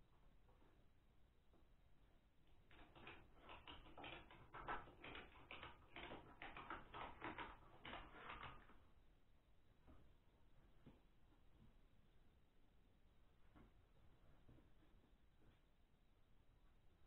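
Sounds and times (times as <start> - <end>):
ratchet strap clicking: 2.7 - 8.8.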